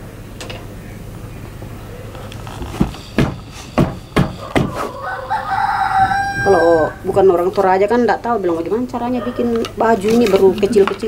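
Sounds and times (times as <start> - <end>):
rooster crowing: 4.3 - 7.3, 9.0 - 9.6.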